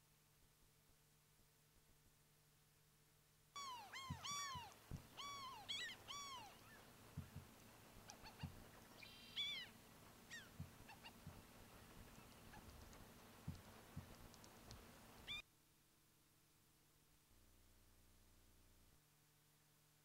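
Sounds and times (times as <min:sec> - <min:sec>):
gulls calling: 0:03.6 - 0:15.4.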